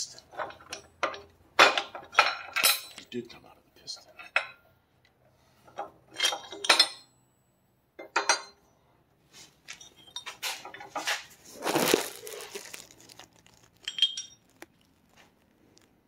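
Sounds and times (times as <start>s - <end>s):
steel engine parts clinking: 0.0s - 3.2s, 4.0s - 4.6s, 5.7s - 7.3s, 8.0s - 8.7s, 9.7s - 12.8s, 13.6s - 14.9s.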